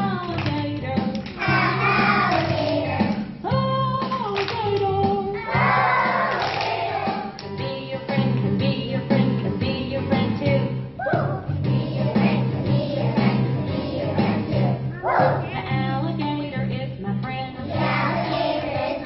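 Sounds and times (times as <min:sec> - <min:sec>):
backing track accompaniment: 0:00.0 - 0:19.0
children singing: 0:01.4 - 0:03.2, 0:05.4 - 0:07.4, 0:11.7 - 0:15.6, 0:17.7 - 0:19.0.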